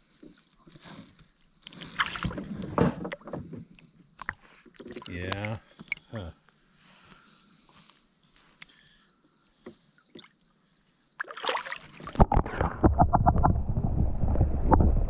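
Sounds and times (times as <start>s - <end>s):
water splashing against canoe: 1.6s - 6.0s, 11.2s - 15.0s.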